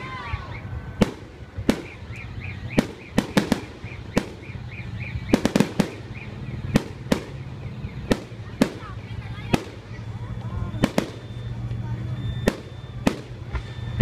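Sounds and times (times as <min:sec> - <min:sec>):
fireworks bursting: 0:00.0 - 0:14.0.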